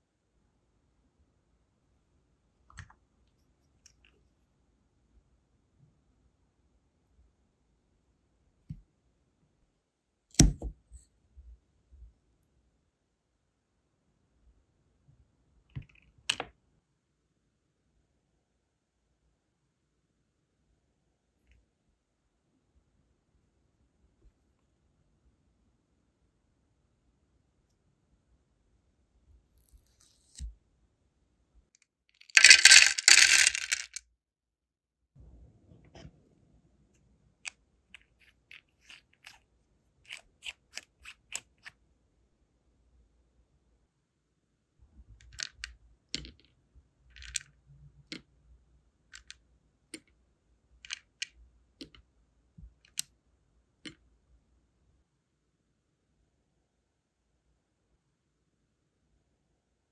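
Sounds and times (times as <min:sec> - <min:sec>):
wax beads clattering into plastic box: 0:32.2 - 0:34.0.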